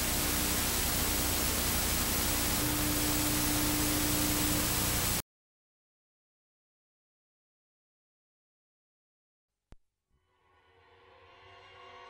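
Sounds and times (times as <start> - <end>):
low steady hum: 0.0 - 5.2
video static hiss: 0.0 - 5.2.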